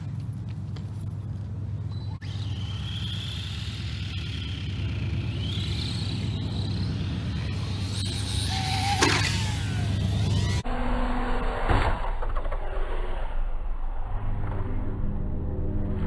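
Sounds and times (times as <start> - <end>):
electric motor whining: 2.2 - 10.6.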